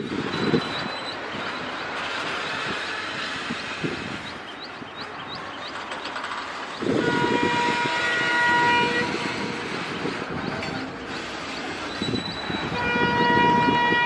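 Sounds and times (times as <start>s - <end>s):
diesel locomotive engine rumbling: 0.0s - 14.0s
train horn blast: 6.8s - 14.0s.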